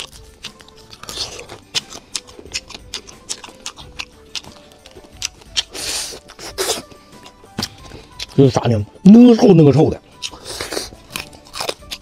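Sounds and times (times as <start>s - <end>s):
shells cracking and chewing: 0.0s - 8.4s, 10.0s - 12.0s
person slurping: 5.6s - 7.0s, 10.2s - 11.0s.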